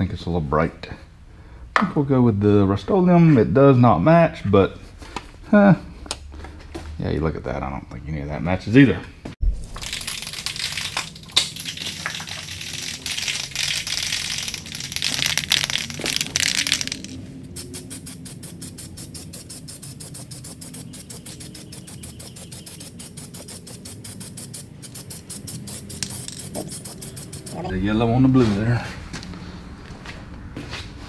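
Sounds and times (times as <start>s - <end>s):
spray can mixing ball rattle: 9.6s - 27.7s
spray can hissing: 9.9s - 27.7s.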